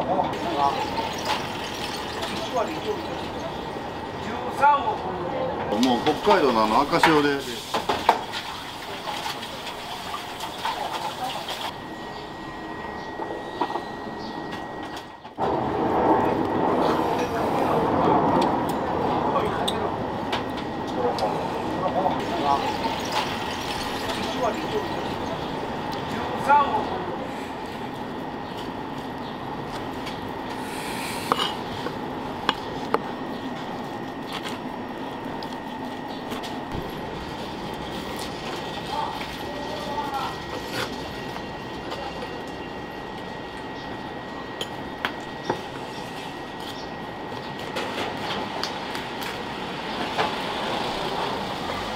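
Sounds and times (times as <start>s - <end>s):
steady background noise: 0.0s - 51.9s
faint high whine: 11.7s - 48.0s.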